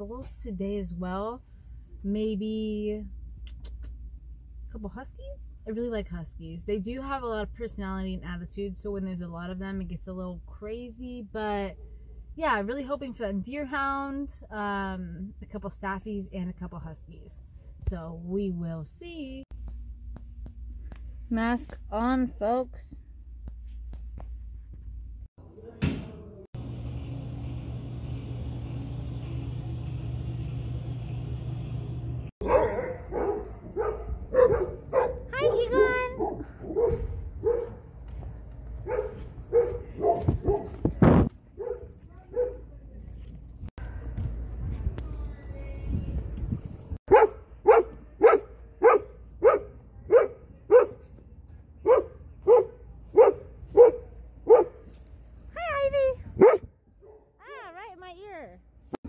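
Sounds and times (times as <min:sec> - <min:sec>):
steady hum: 0:26.6 - 0:32.3
dogs barking: 0:32.4 - 0:37.9, 0:38.8 - 0:40.9, 0:41.5 - 0:42.8, 0:47.1 - 0:51.1, 0:51.8 - 0:54.9, 0:56.4 - 0:57.3.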